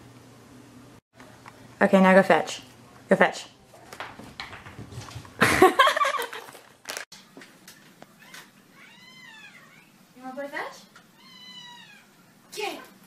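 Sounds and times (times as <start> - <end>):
cat meowing: 8.1 - 10.0, 11.1 - 12.3.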